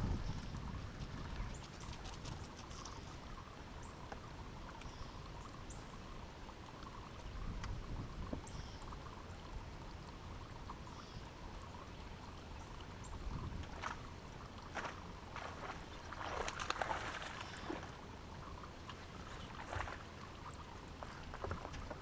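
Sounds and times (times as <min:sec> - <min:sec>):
steady low rumble: 0:00.0 - 0:01.7
light ticks: 0:04.0 - 0:05.0.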